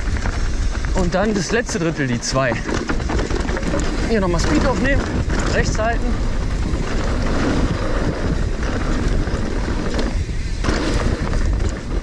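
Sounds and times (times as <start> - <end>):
bike rattles and clicks: 0.0 - 12.0
bike tyres rumbling on dirt: 0.0 - 12.0
wind on microphone: 0.0 - 12.0.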